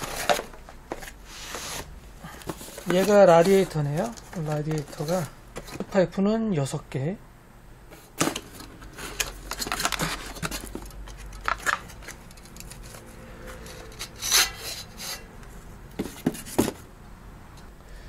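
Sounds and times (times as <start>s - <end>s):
cardboard packaging rustling: 0.0s - 6.0s, 8.0s - 15.0s
cardboard flaps scraping: 2.5s - 5.9s
handling clicks and knocks: 8.2s - 13.0s.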